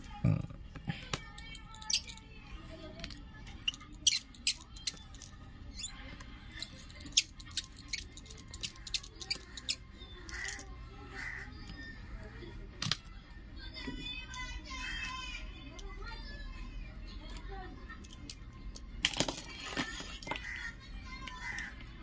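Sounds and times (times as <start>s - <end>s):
faint background music: 0.0s - 22.0s
voices: 0.0s - 22.0s
screwdriver clicking on tiny screws: 1.1s - 2.2s, 3.0s - 5.9s, 6.6s - 10.6s.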